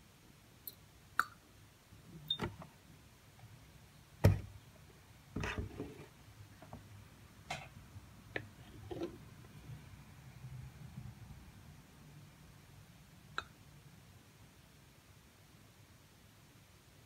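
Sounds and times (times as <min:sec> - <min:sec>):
carton thump on tabletop: 0:04.2 - 0:04.5.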